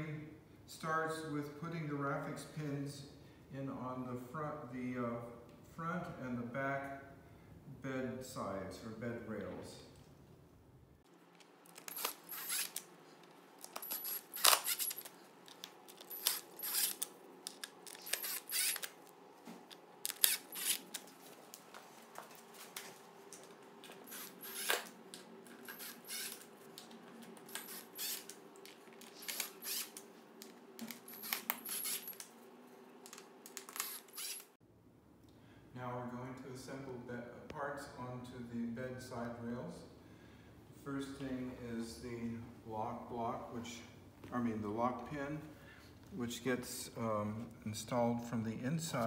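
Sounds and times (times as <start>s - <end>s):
cordless drill-driver: 11.7s - 12.9s, 13.6s - 15.1s, 16.0s - 19.0s, 20.1s - 21.0s, 24.0s - 24.9s, 25.6s - 26.5s, 27.5s - 28.4s, 29.0s - 30.0s, 30.9s - 32.2s, 33.6s - 34.5s.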